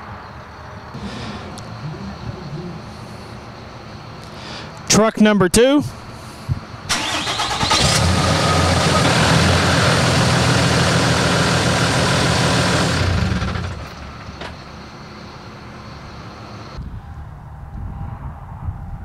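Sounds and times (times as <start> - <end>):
diesel pickup engine running: 1.0 - 4.1, 6.9 - 16.2.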